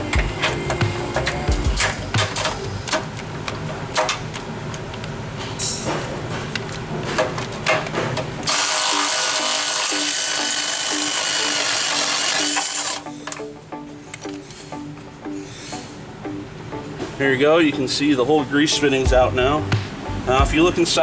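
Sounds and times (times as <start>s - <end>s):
metallic clicks and knocks: 0.1s - 3.2s
cordless power tool running: 8.5s - 13.0s.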